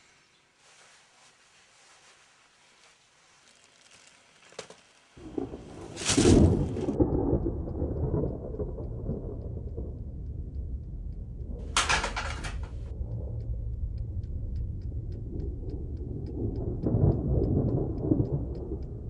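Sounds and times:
rain: 0:00.0 - 0:19.0
thunder rumbling and cracking: 0:05.2 - 0:19.0.

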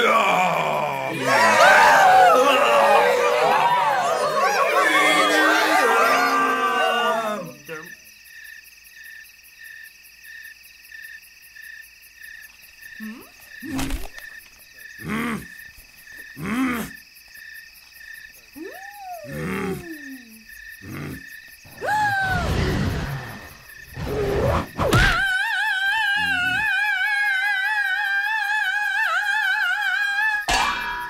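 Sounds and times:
vocal exclamation: 0:00.0 - 0:08.0, 0:13.0 - 0:14.1, 0:15.0 - 0:15.5, 0:16.4 - 0:17.0, 0:18.5 - 0:24.3, 0:24.9 - 0:30.5
crickets chirping: 0:00.0 - 0:31.0
cartoon character grunts: 0:16.4 - 0:17.0, 0:18.6 - 0:21.2.

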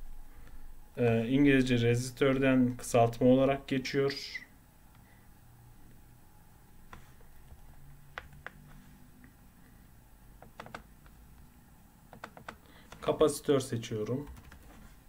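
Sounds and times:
computer mouse clicks: 0:10.4 - 0:11.2, 0:12.1 - 0:13.1.

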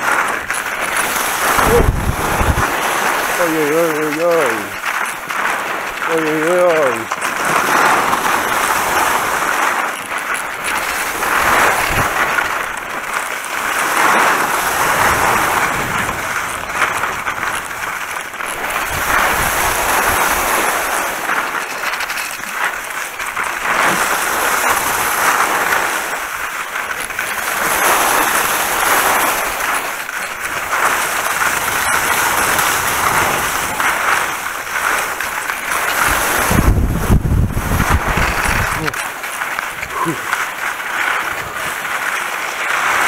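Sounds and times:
skis hissing on wet snow: 0:00.0 - 0:43.0
wind on microphone: 0:00.9 - 0:04.8, 0:10.8 - 0:12.5, 0:18.8 - 0:22.4, 0:36.0 - 0:39.0.

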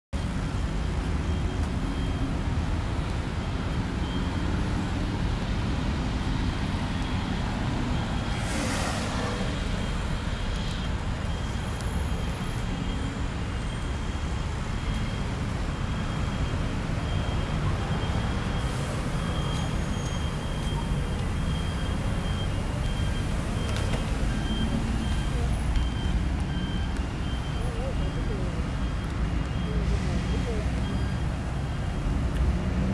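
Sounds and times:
rumble of road traffic: 0:00.1 - 0:32.9
vehicle hissing past: 0:08.2 - 0:10.1.

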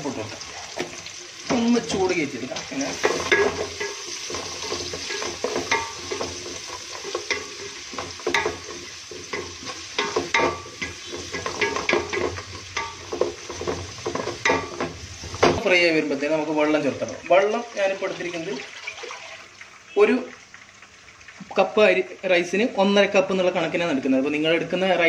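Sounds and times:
spices sizzling in hot fat: 0:00.0 - 0:25.0
spatula scraping metal pot: 0:02.9 - 0:15.4.

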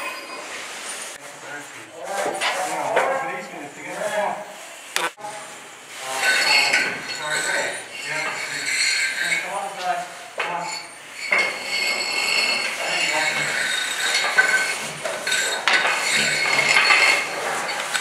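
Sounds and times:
metal tools clinking and knocking: 0:06.1 - 0:18.0.

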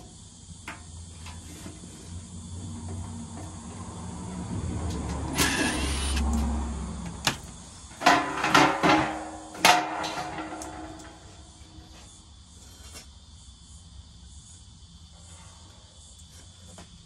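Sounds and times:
metallic clanks and knocks: 0:08.0 - 0:11.6.

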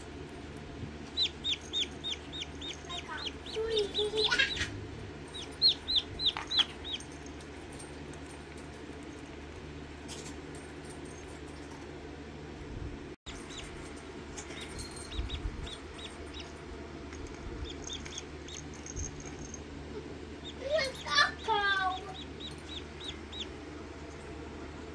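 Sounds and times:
chick peeping: 0:01.1 - 0:04.7, 0:05.4 - 0:07.0, 0:20.4 - 0:23.6.

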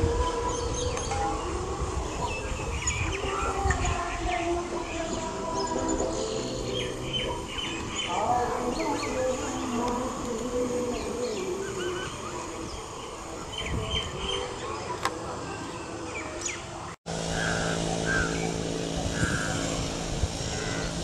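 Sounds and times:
small birds chirping: 0:00.0 - 0:21.0
low machine hum: 0:17.1 - 0:21.0.

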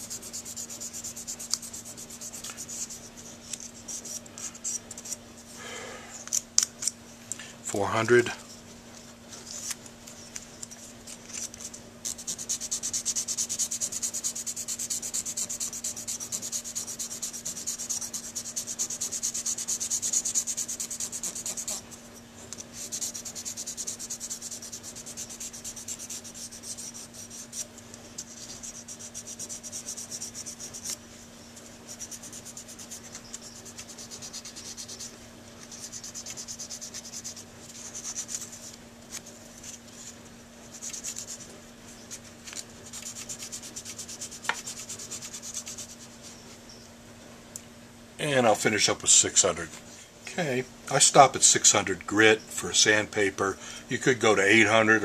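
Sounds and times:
sandpaper rubbing on metal: 0:00.0 - 0:05.2, 0:11.4 - 0:22.0, 0:22.7 - 0:31.0, 0:31.6 - 0:38.8, 0:39.6 - 0:46.3.

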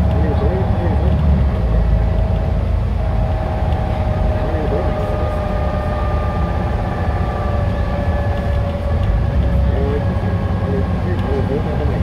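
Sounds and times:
bus diesel engine rumbling: 0:00.0 - 0:12.0
engine whine: 0:00.0 - 0:12.0.

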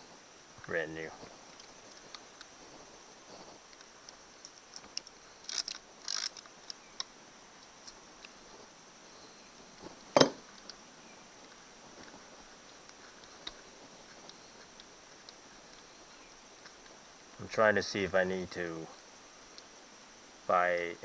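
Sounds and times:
sharp knock on metal: 0:10.2 - 0:10.4.

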